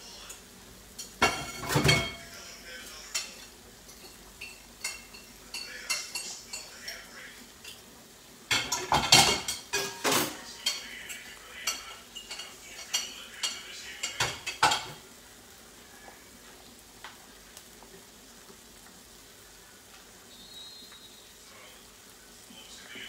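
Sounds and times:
utensils and pans clinking: 0:01.0 - 0:02.3, 0:03.1 - 0:07.8, 0:08.5 - 0:15.0.

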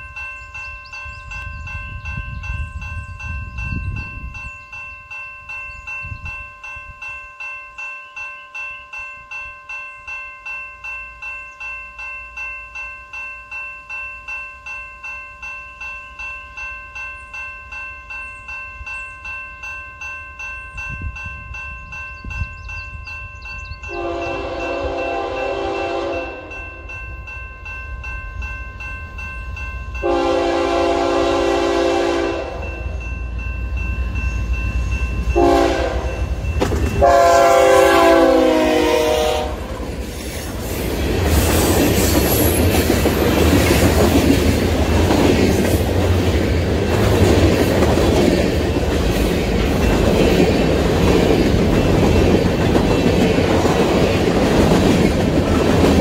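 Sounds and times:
train rumbling past: 0:20.7 - 0:56.0
locomotive air horn blasts: 0:23.9 - 0:26.6, 0:30.0 - 0:32.8, 0:35.4 - 0:36.3, 0:37.0 - 0:39.8
wheels clacking over rail joints: 0:36.4 - 0:37.0, 0:39.7 - 0:56.0.

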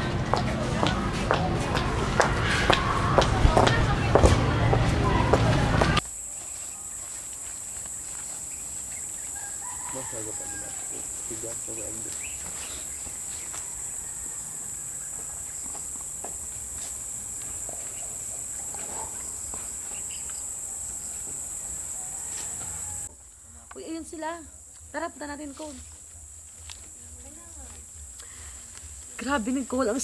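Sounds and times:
insects droning: 0:02.2 - 0:30.0
rooster crowing: 0:09.0 - 0:15.8, 0:21.7 - 0:23.1.

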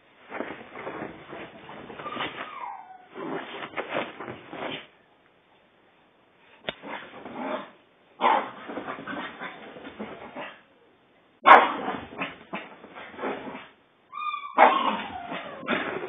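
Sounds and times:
dog scuffling on cushions: 0:00.2 - 0:04.9, 0:08.4 - 0:10.5
dog play-growling: 0:00.3 - 0:04.9, 0:06.8 - 0:10.6, 0:14.7 - 0:16.0.

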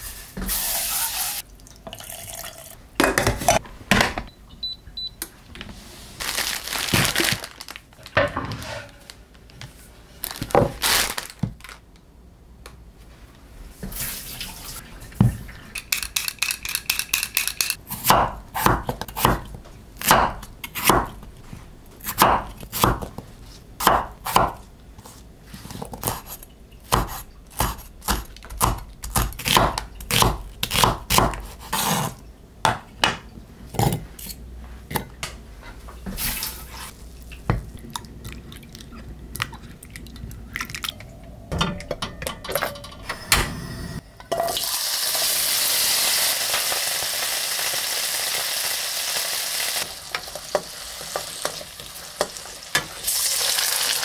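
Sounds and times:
potatoes frying in a pan: 0:44.6 - 0:54.0.

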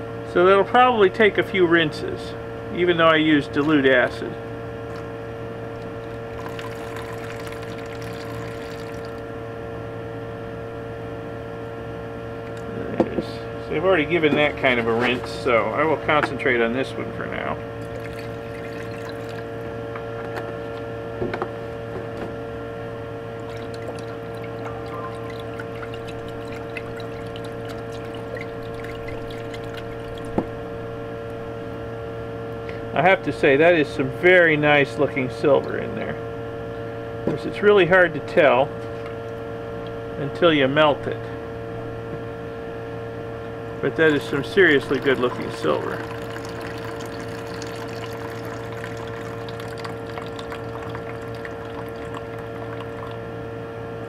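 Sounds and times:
background hum: 0:00.0 - 0:54.0
water sloshing in glass beaker: 0:04.8 - 0:09.2, 0:17.7 - 0:19.7, 0:23.2 - 0:30.6, 0:43.9 - 0:53.2.

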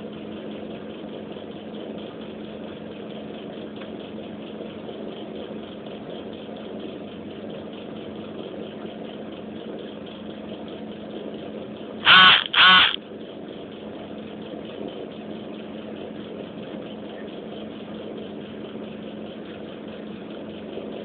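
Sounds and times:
low mechanical hum: 0:00.0 - 0:21.0
harsh pitched calls: 0:12.0 - 0:13.0.

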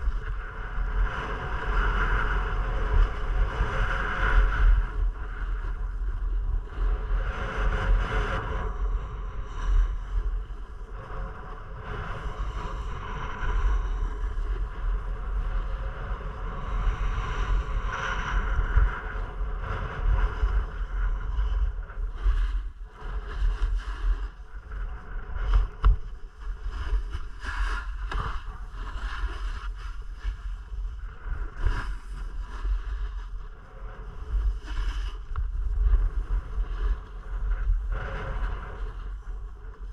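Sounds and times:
wind buffeting microphone: 0:00.0 - 0:39.9
skis scraping over snow: 0:25.6 - 0:30.8, 0:31.4 - 0:33.3, 0:34.1 - 0:37.2.

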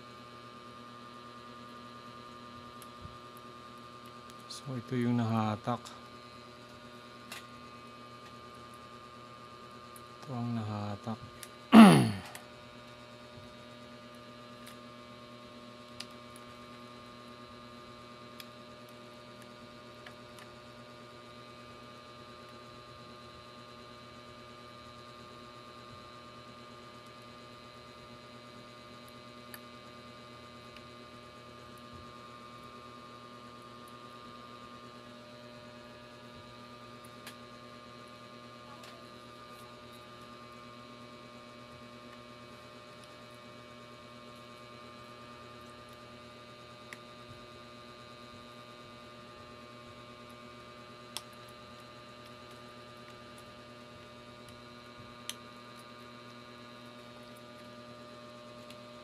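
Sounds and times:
electrical hum: 0:01.0 - 0:12.5.

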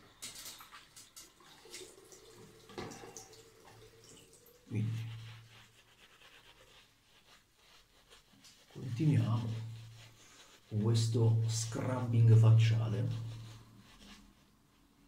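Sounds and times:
wet rubbing of shaving soap: 0:04.6 - 0:15.0.

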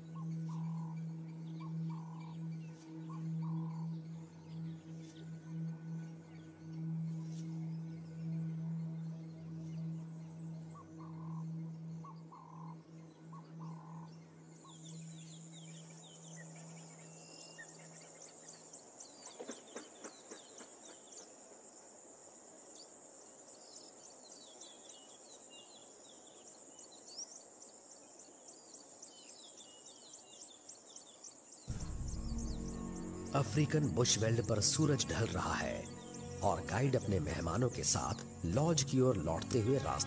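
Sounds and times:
low music drone: 0:00.0 - 0:17.0, 0:31.7 - 0:40.0
bird chirps: 0:00.0 - 0:21.4, 0:28.2 - 0:40.0
high-pitched insect trill: 0:31.3 - 0:40.0.

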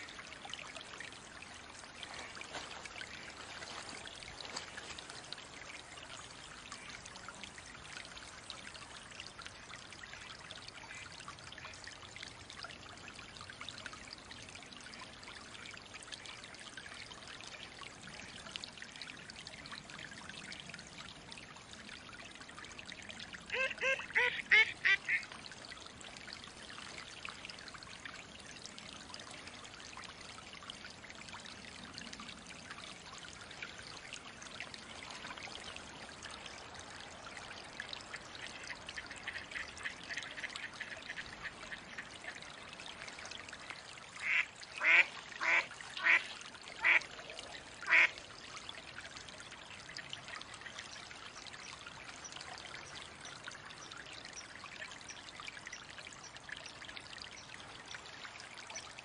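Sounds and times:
running water: 0:00.0 - 0:59.0
duck quacking: 0:23.5 - 0:25.2.

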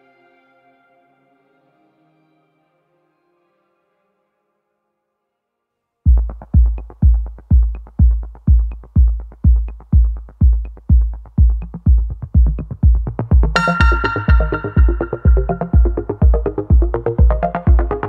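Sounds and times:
electronic music: 0:06.1 - 0:18.0
kick-drum beat: 0:06.1 - 0:18.0.

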